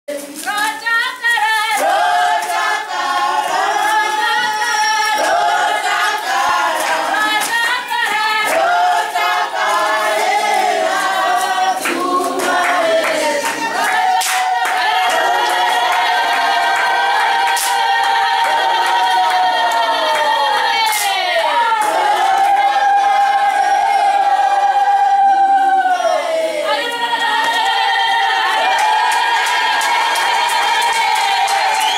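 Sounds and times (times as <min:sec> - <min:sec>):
women singing together: 0:00.1 - 0:31.9
hand claps: 0:00.2 - 0:22.1, 0:28.5 - 0:31.9.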